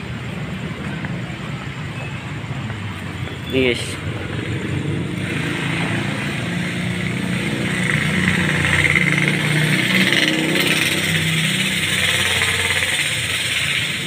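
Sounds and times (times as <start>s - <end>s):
street traffic noise: 0.0s - 14.0s
motorcycle engine running: 2.5s - 14.0s.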